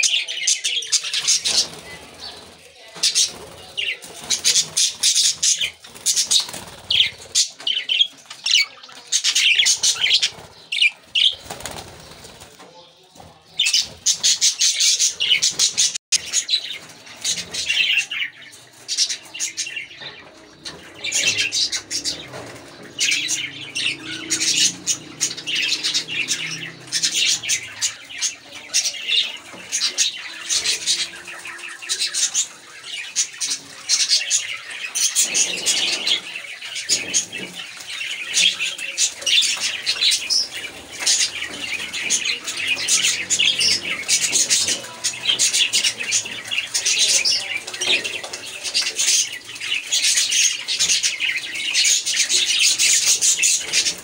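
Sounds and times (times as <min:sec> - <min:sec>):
budgerigars chattering: 0:18.9 - 0:54.0.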